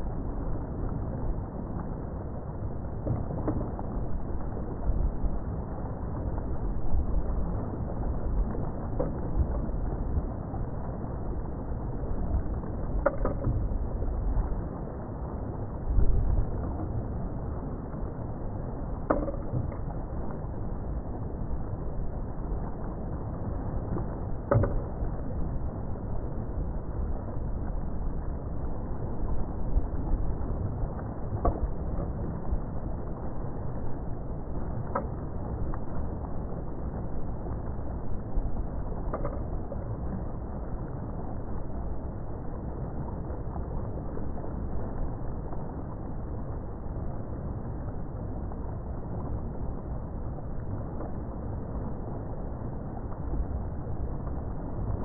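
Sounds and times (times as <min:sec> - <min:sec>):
wind: 0:00.0 - 0:55.0.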